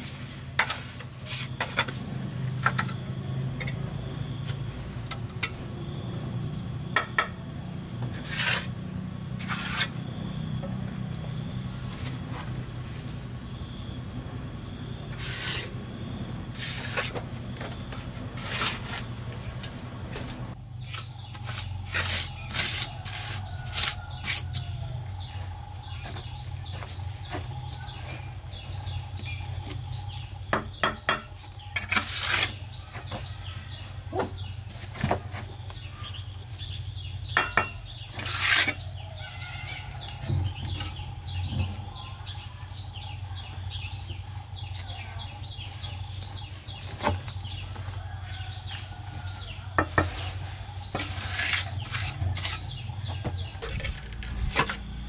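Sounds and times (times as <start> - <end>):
steady low hum: 0.0 - 55.0
trowel scraping mortar: 8.0 - 10.0, 15.1 - 15.8, 16.5 - 17.2, 18.3 - 19.1, 20.8 - 24.6, 31.7 - 32.7, 38.1 - 38.8, 49.9 - 54.8.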